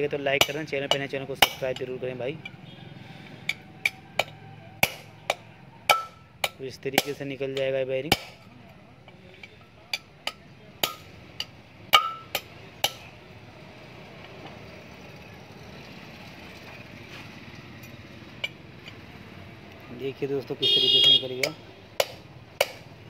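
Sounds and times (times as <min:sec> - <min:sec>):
hammer striking steel: 0:00.4 - 0:02.6, 0:03.4 - 0:08.5, 0:09.4 - 0:13.1, 0:21.1 - 0:22.9.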